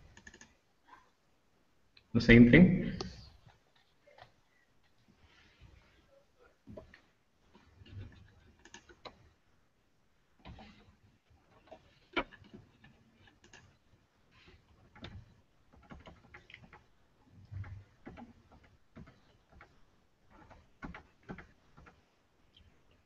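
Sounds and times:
computer mouse clicks: 0.0 - 0.6, 7.8 - 9.2, 11.5 - 13.8.

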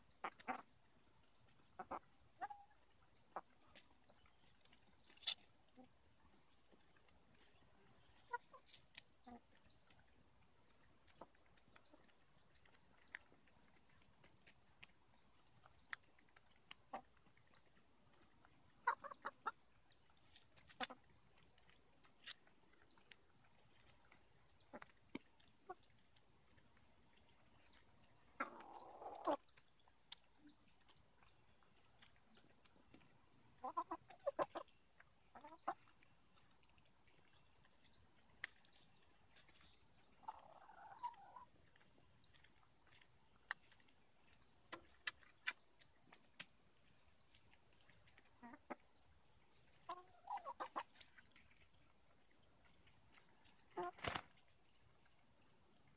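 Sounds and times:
hens clucking: 0.0 - 55.9
beaks tapping on seed: 1.4 - 55.9
hen calling: 40.2 - 41.5.

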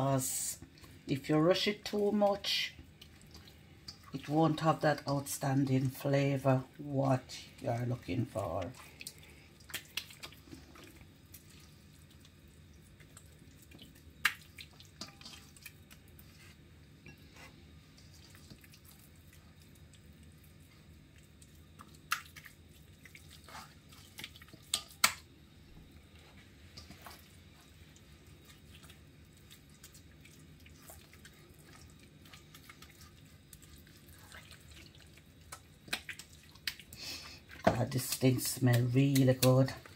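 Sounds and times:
low steady hum: 0.0 - 39.9
hands squelching raw meat: 7.6 - 16.6, 17.9 - 25.3, 26.6 - 39.9.

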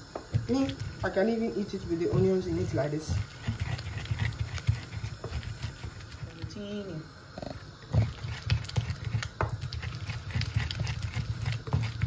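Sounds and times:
wooden pestle grinding in clay bowl: 0.1 - 6.6, 7.4 - 12.0.

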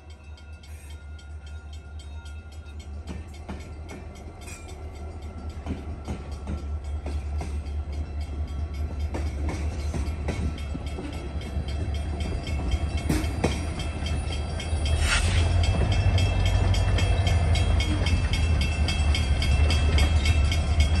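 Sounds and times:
diesel locomotive rumble: 0.0 - 21.0
train wheels clicking on rails: 0.0 - 21.0
short hiss: 15.0 - 15.5.

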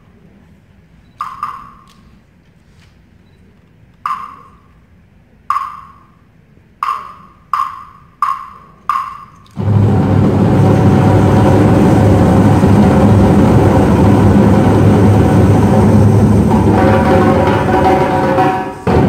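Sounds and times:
ringing percussion strikes: 6.8 - 19.0.

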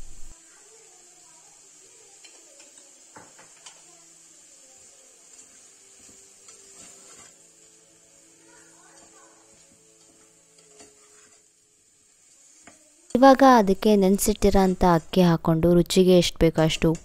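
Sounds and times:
pressure cooker hissing: 0.0 - 17.0
spoon scraping a pot: 5.4 - 7.4, 9.0 - 11.5.

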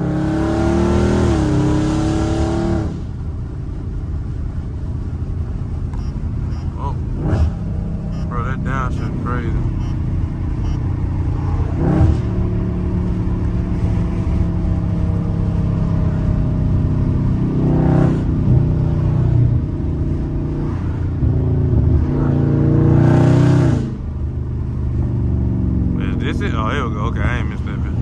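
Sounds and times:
car exhaust droning from inside cabin: 2.8 - 23.1.

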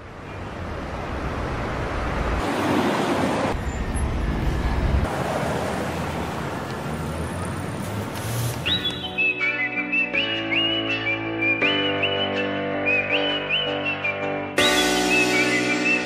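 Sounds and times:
wind and road noise: 0.0 - 9.3.

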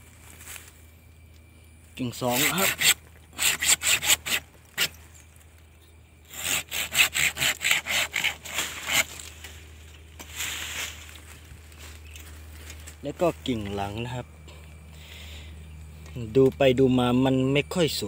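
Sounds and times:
hand saw cutting branch: 2.2 - 5.0, 6.3 - 9.3
leaves rustling: 8.0 - 13.9.

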